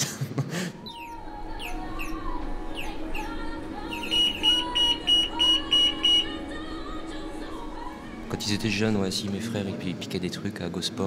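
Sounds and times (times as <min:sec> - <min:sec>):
steady electrical hum: 0:00.6 - 0:10.0
falling electronic chirps: 0:00.8 - 0:07.1
short high alarm beeps: 0:04.0 - 0:06.4.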